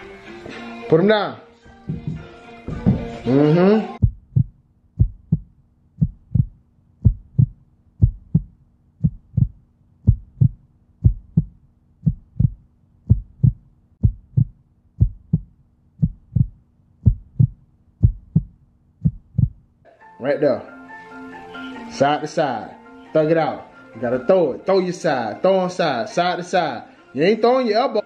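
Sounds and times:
heartbeat thumps: 1.8s - 3.4s, 4.0s - 19.7s.

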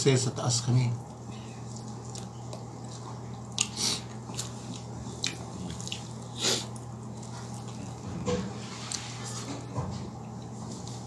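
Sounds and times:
steady low hum: 0.0s - 11.0s
person chewing: 1.0s - 8.1s.

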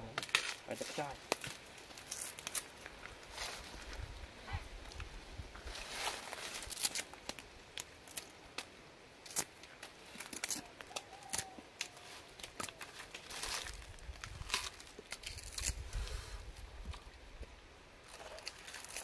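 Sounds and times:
sugarcane rind cracking and tearing: 0.0s - 3.6s, 5.8s - 16.0s, 18.0s - 19.0s
crunching bite into cane: 9.2s - 15.8s, 18.1s - 19.0s.

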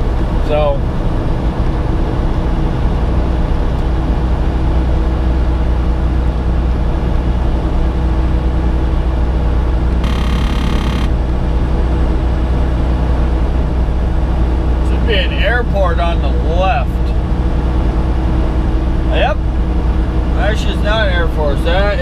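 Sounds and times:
truck engine drone: 0.0s - 22.0s
brief tone: 10.0s - 11.1s.

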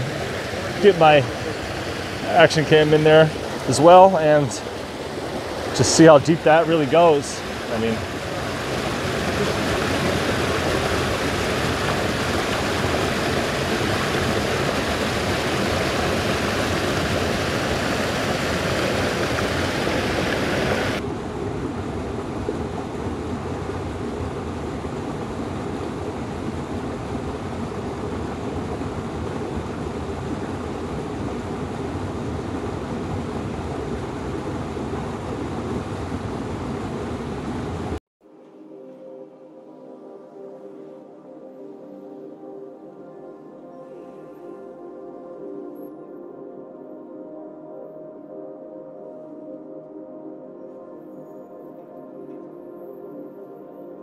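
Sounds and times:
creek water rushing over boulders: 0.0s - 38.0s.

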